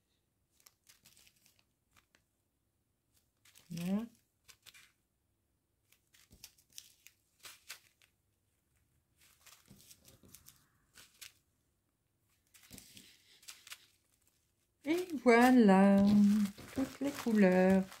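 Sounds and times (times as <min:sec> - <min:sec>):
plastic bags crinkling: 0:00.5 - 0:02.2, 0:09.2 - 0:11.4, 0:12.4 - 0:18.0.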